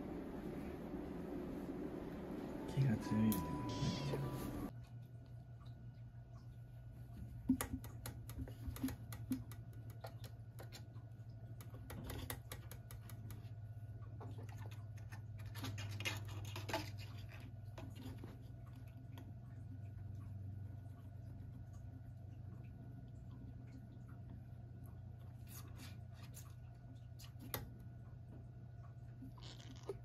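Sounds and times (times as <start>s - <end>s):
low hum: 0.0s - 7.4s.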